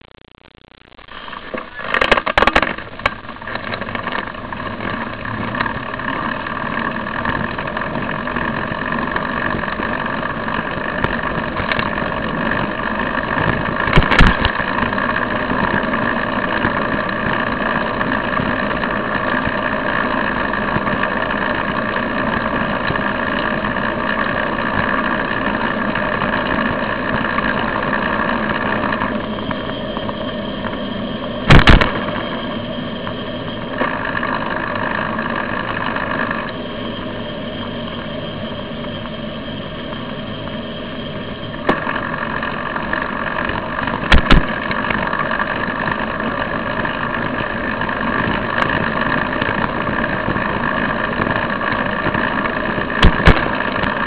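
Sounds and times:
road vibration: 0.0 - 54.0
sharp jolt: 13.8 - 14.8, 31.5 - 32.6, 53.0 - 54.0.

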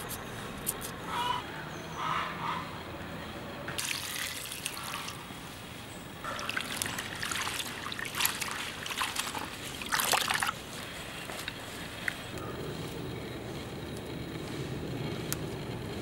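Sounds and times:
water running into pot: 3.8 - 5.2
water splashes: 3.8 - 5.3, 6.2 - 10.7
hands swishing seeds in water: 6.3 - 12.2.

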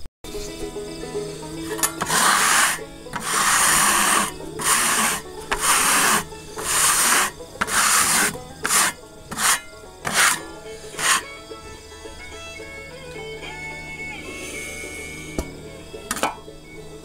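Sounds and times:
brush rasping on rough wood: 1.8 - 11.3.

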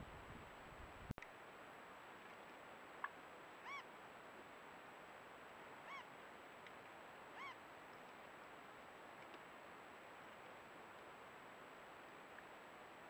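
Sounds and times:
faint steady hiss: 0.0 - 13.0
bird calling short notes: 3.6 - 3.8, 7.4 - 7.6.

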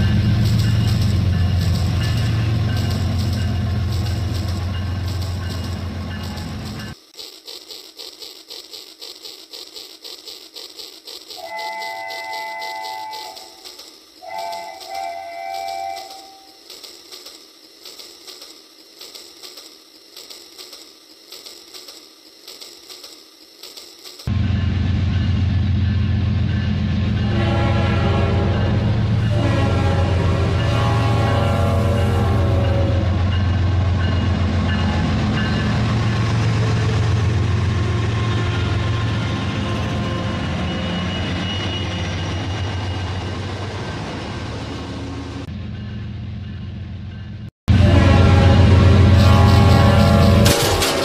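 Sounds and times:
loud low train sound: 0.0 - 7.1, 11.2 - 20.8, 24.1 - 51.0
toy train clicking: 0.0 - 24.3, 49.3 - 51.0.

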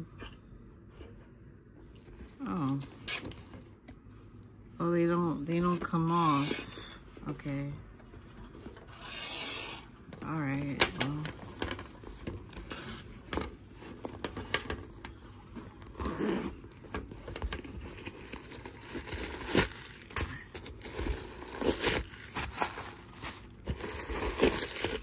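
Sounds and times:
bag rustling and crinkling: 11.4 - 25.0
metal zipper being pulled open: 15.9 - 16.6.

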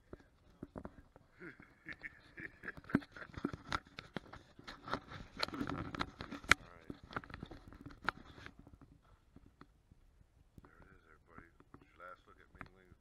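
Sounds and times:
camera handling clicks and rustles: 2.6 - 9.7.

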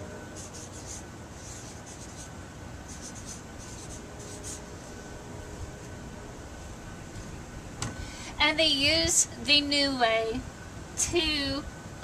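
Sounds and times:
marker scratching on poster board: 0.4 - 2.3, 2.9 - 4.9.

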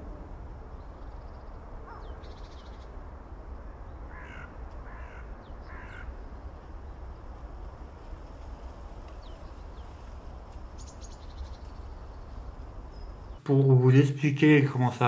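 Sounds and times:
low outdoor rumble: 0.0 - 15.0
crow cawing: 4.1 - 6.2.

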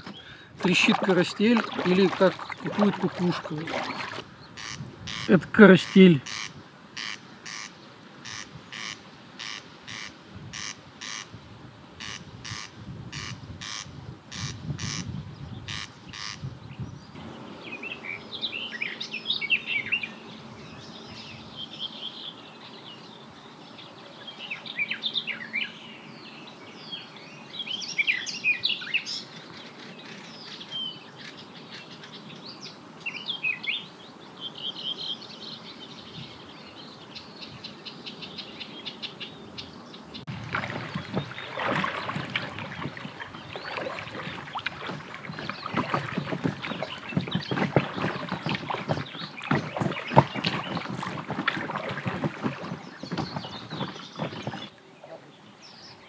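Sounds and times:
water rushing and splashing: 0.0 - 11.0, 40.2 - 55.0
songbirds singing and chirping: 0.0 - 56.0.

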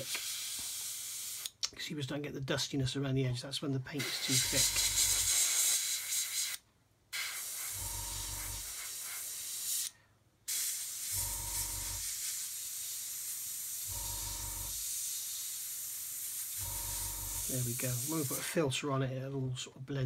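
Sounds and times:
airbrush hissing: 0.0 - 1.5, 4.0 - 6.6, 7.2 - 9.9, 10.5 - 18.6.

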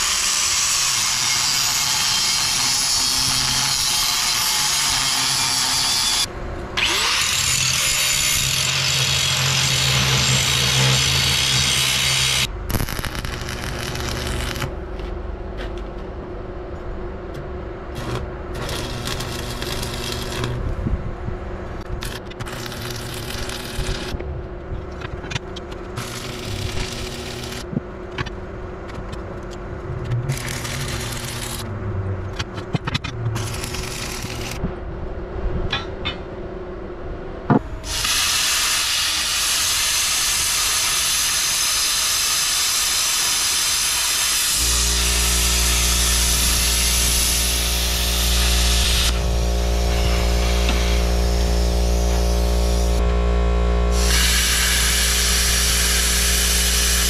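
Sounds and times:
angle grinder cutting steel: 0.0 - 14.8, 18.0 - 20.6, 22.0 - 24.2, 26.0 - 27.6, 30.3 - 31.7, 33.4 - 34.6, 37.8 - 53.1, 53.9 - 57.0
welding arc crackling hiss: 0.0 - 14.8, 18.0 - 20.6, 21.8 - 24.2, 26.0 - 27.7, 30.3 - 31.6, 33.4 - 34.6, 37.8 - 53.0, 53.9 - 57.0
steady low hum: 9.3 - 37.9, 44.6 - 57.0.

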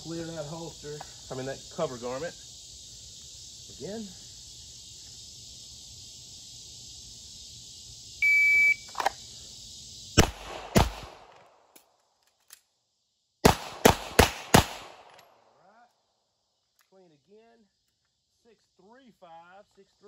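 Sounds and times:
crickets chirping: 0.0 - 20.0
shot timer beep: 8.2 - 8.9
pistol shots: 10.2 - 11.4, 13.4 - 15.3.

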